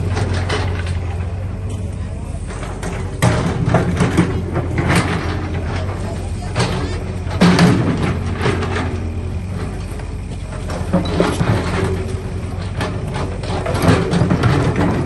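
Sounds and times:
diesel excavator engine running: 0.0s - 15.0s.

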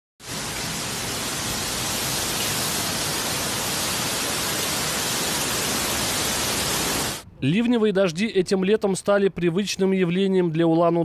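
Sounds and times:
heavy rain pouring on road: 0.2s - 7.2s.

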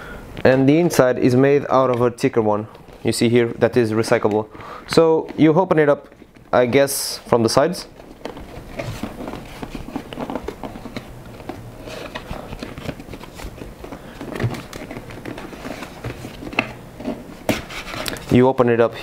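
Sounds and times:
cardboard box rustling and scraping: 7.9s - 18.4s.

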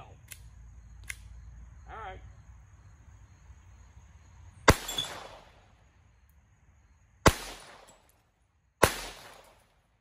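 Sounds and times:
pistol shots with echo: 4.6s - 5.6s, 7.2s - 8.1s, 8.8s - 9.7s.

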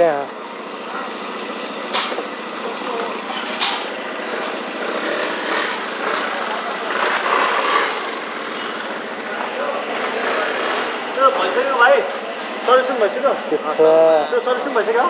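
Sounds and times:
road and vehicle noise: 0.0s - 15.0s
short sharp hisses: 1.9s - 2.3s, 3.6s - 4.0s.

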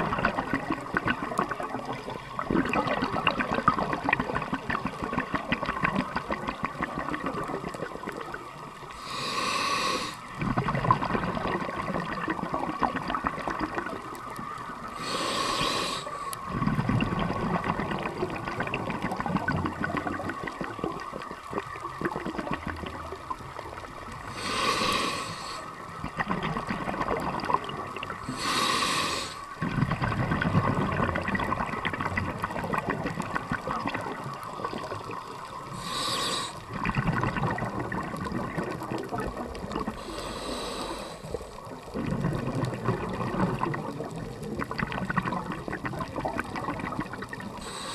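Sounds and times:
exhaled bubbles rumbling: 0.0s - 47.9s
regulator inhalation hiss: 9.0s - 10.3s, 15.0s - 16.4s, 24.3s - 25.8s, 28.2s - 29.6s, 35.7s - 36.7s, 40.0s - 41.6s, 47.6s - 47.9s.

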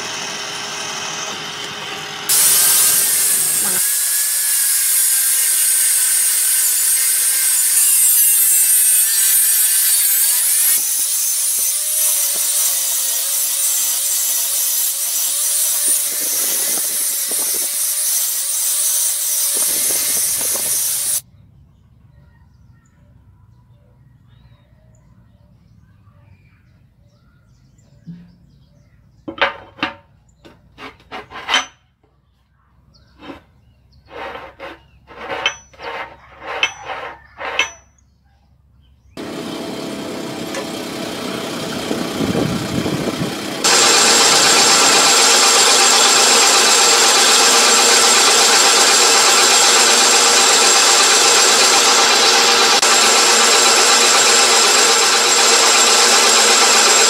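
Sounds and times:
metal lathe cutting: 0.0s - 21.2s, 39.2s - 57.0s.

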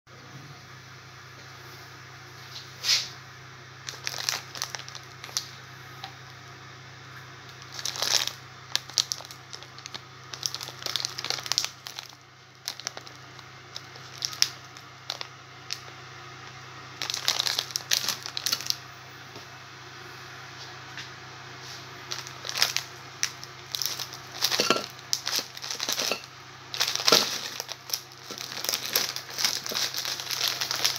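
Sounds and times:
plastic wrapper crinkling: 3.8s - 5.6s, 7.5s - 16.0s, 17.0s - 18.8s, 22.0s - 30.9s.

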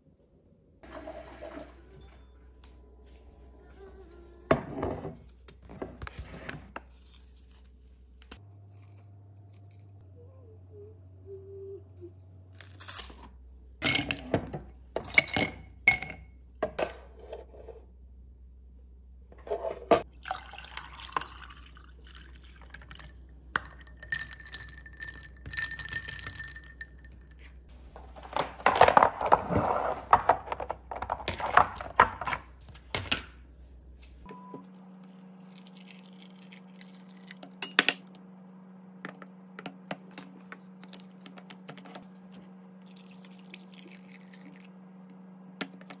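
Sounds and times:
liquid sound: 34.7s - 37.6s, 42.8s - 44.7s.

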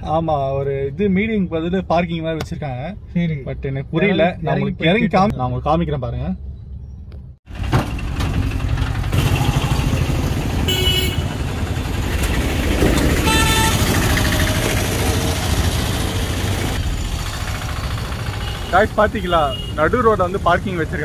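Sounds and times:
motorbike and rickshaw engines: 7.5s - 21.0s
vehicle horn toots: 10.6s - 11.4s, 13.2s - 14.2s, 18.4s - 20.0s.

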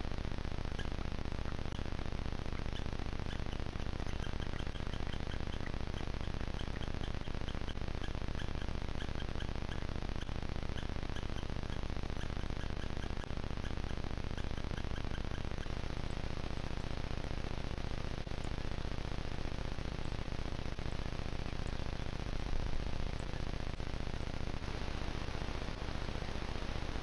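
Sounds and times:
microphone hiss: 0.0s - 27.0s
small bird chirping: 0.7s - 17.0s, 20.0s - 22.1s, 22.7s - 24.4s.

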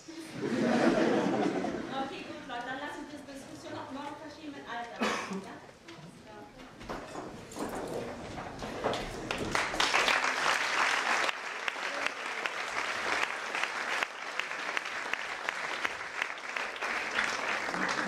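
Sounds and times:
audience applauding: 9.1s - 18.0s.

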